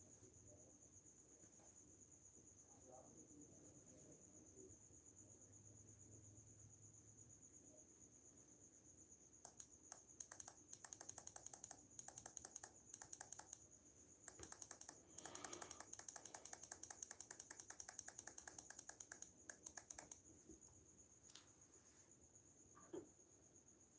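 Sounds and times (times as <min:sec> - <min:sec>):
computer keyboard typing: 0:09.4 - 0:13.6, 0:14.2 - 0:20.2.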